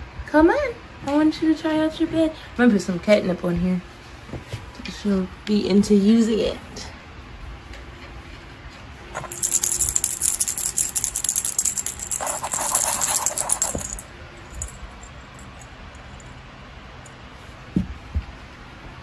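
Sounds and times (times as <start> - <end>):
plastic toy ball rattling: 9.1 - 15.7.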